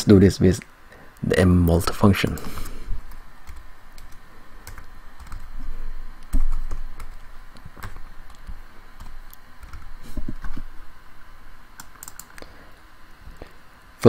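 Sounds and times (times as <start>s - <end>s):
typing on computer keyboard: 3.5s - 5.5s, 11.8s - 12.4s.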